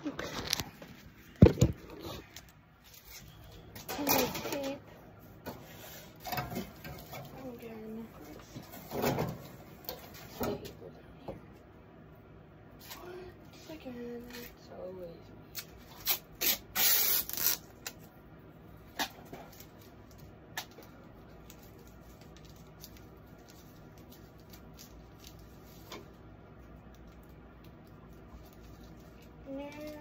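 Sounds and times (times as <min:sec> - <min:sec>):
tape ripped off a roll: 0:16.0 - 0:18.0.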